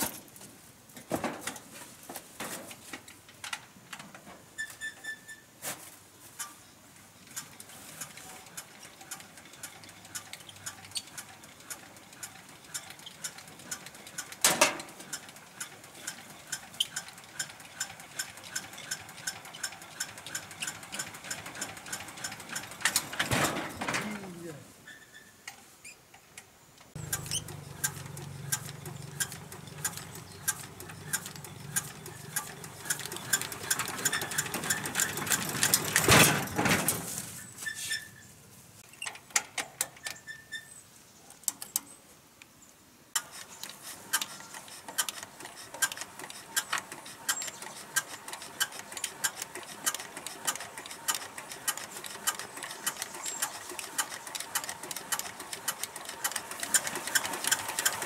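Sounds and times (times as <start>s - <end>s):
water pump motor rattling: 8.4s - 23.2s, 27.0s - 36.6s, 43.2s - 58.0s.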